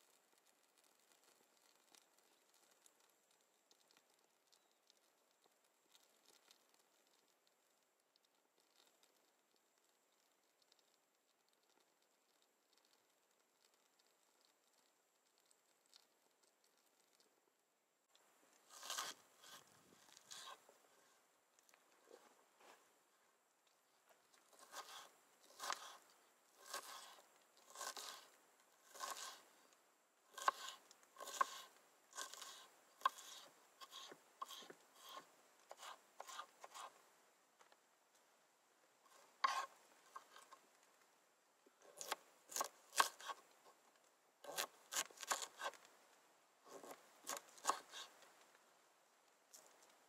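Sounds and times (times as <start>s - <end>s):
knife cutting tomato: 18.6s - 20.7s, 24.5s - 29.5s, 30.3s - 37.0s, 39.1s - 40.6s, 41.8s - 43.7s, 44.4s - 45.8s, 46.7s - 48.2s
knife slicing on wooden board: 18.7s - 19.6s, 24.6s - 26.0s, 26.6s - 29.4s, 30.3s - 36.9s, 39.4s - 40.6s, 41.9s - 43.4s, 44.4s - 45.8s, 46.7s - 48.1s.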